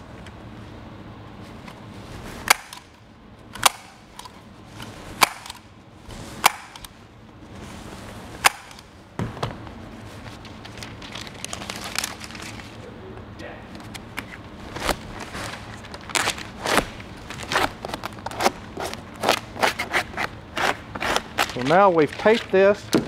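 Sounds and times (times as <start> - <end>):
staple gun snapping: 5.2 - 5.6
foil crinkling: 10.2 - 12.8, 21.0 - 22.8.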